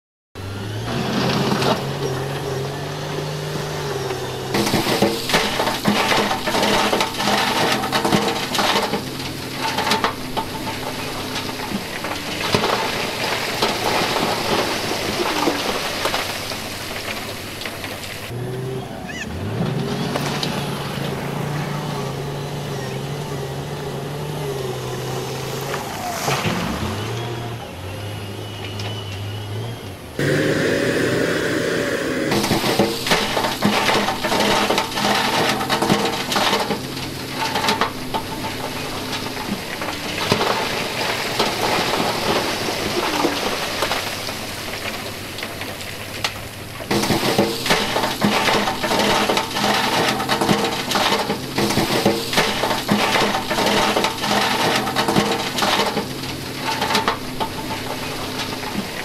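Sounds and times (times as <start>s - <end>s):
truck engine drone: 0.4s - 59.0s
rock clattering and sliding: 0.9s - 18.4s, 32.3s - 59.0s.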